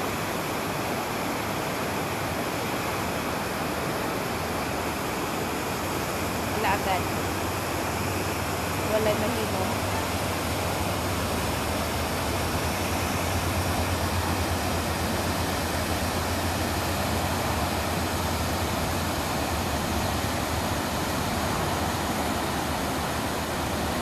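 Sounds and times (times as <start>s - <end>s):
river rapids rushing: 0.0s - 24.0s.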